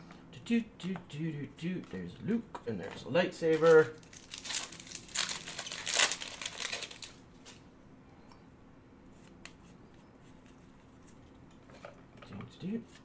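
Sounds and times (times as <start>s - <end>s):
trading cards rustling: 3.4s - 7.6s.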